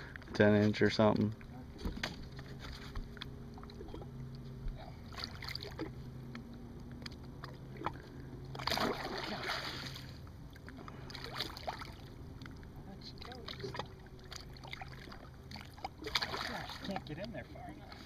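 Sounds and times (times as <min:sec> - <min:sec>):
steady low hum: 0:00.0 - 0:18.0
fish splashing in water: 0:02.3 - 0:06.1, 0:06.8 - 0:17.1.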